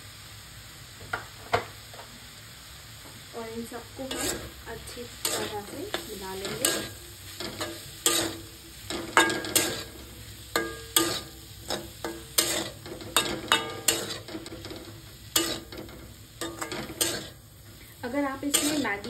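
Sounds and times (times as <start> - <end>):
food sizzling in oil: 0.0 - 19.0
metal spatula scraping pan: 4.0 - 19.0.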